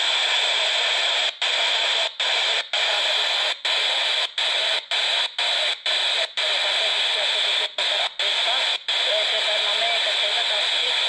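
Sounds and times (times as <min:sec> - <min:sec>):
radio scanner static hiss: 0:00.0 - 0:11.0.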